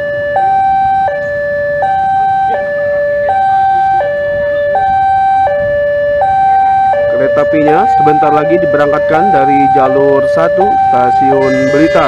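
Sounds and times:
two-tone crossing alarm: 0.0 - 12.0.

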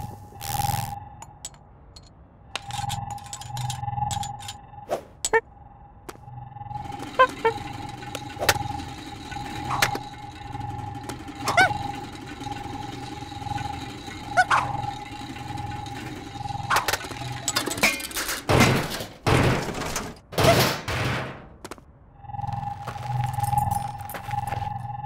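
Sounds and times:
steady humming drone: 0.0 - 20.0, 22.1 - 25.0
rapid loud knocks and thuds: 18.5 - 21.6.

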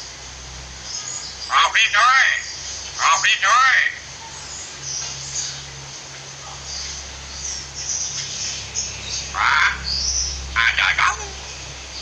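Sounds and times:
birds chirping: 0.6 - 12.0
harsh bird call: 0.9 - 4.2, 9.1 - 12.0.

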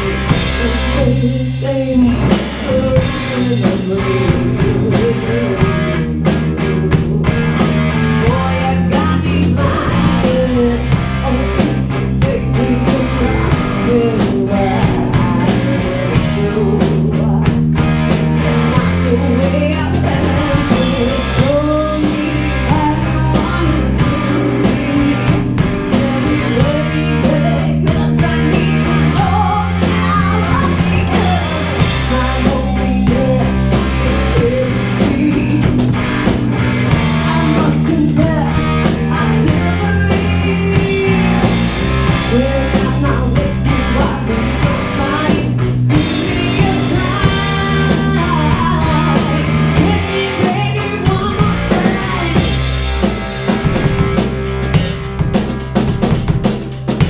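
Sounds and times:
woman singing: 0.0 - 52.8
bass guitar: 0.0 - 57.0
drum kit: 0.0 - 57.0
electric guitars: 0.0 - 57.0.

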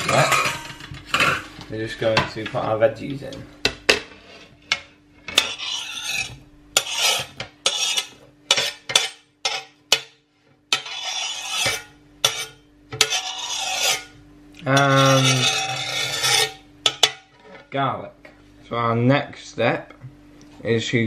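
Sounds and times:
knife scraping on glass board: 4.0 - 17.6.

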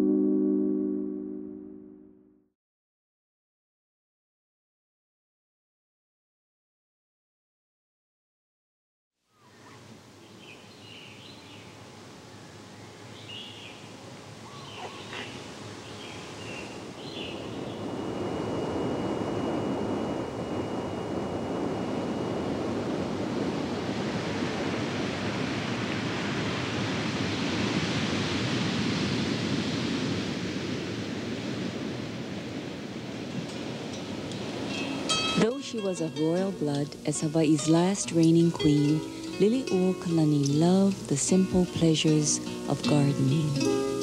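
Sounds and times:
bird chirps: 14.4 - 17.8
heavy ocean surf breaking: 15.0 - 44.0.

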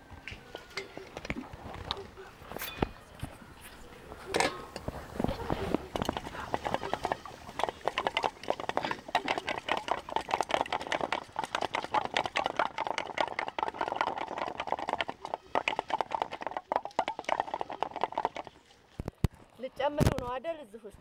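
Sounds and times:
eggs beaten in metal bowl: 4.4 - 18.8.

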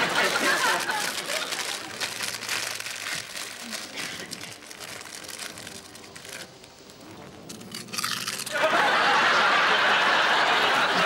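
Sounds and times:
audience laughing: 0.0 - 1.9, 8.5 - 11.0
crisp packet rustling: 0.0 - 6.9, 7.5 - 8.6.

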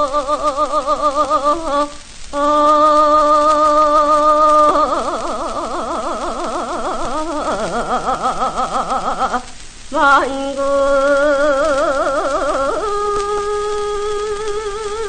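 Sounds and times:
woman singing folk song: 0.0 - 15.0.

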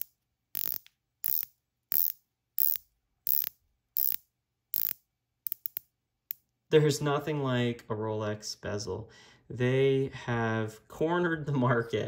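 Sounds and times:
watch bezel ratcheting clicks: 0.0 - 6.4.

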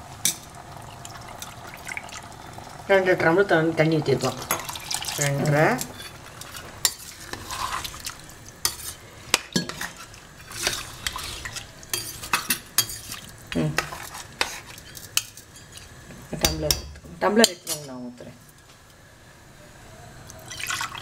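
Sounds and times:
ladle scraping metal pot: 4.5 - 9.0, 9.6 - 15.0.

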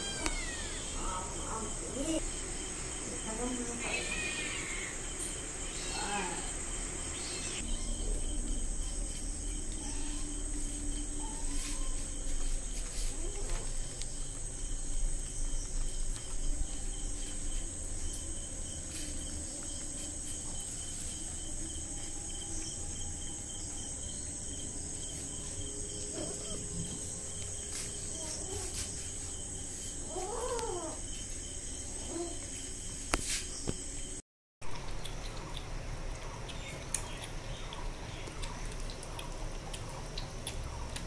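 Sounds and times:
crickets trilling: 0.0 - 41.0
kittens mewing: 30.0 - 31.0.

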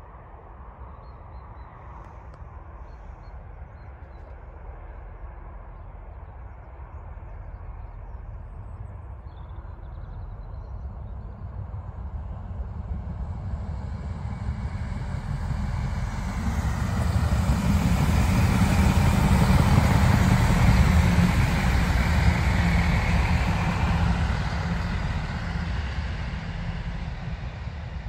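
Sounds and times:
diesel train engines: 1.4 - 28.0
train wheels on rails: 12.6 - 28.0.

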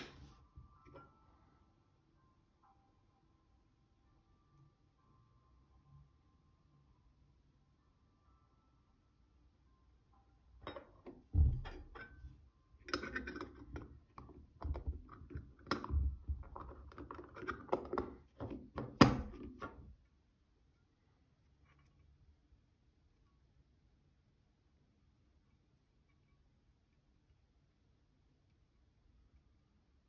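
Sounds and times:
metal box clicking and knocking: 12.9 - 19.8.

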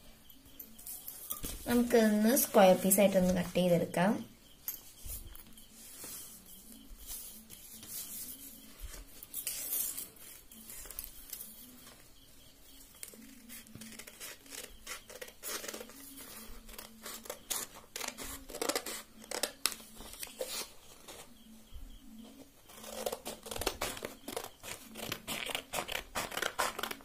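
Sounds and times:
scissors snipping paper: 13.0 - 20.7, 22.7 - 27.0.

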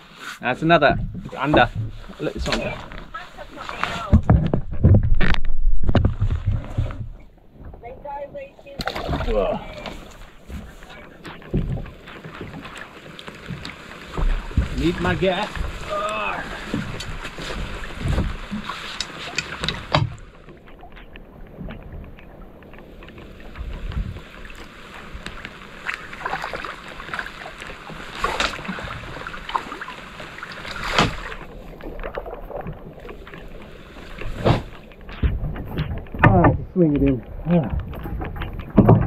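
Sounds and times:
wind and rain noise on microphone: 0.0 - 39.0
fishing gear knocking and clattering: 4.1 - 7.2, 35.0 - 39.0.

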